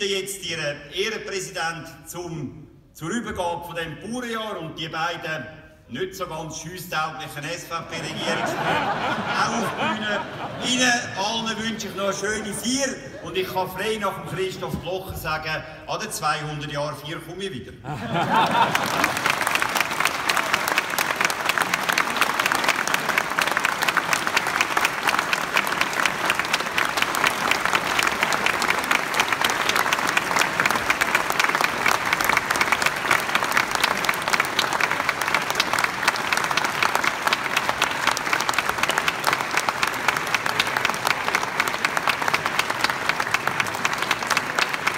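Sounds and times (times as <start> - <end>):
audience applauding: 7.9 - 12.6, 18.1 - 44.9.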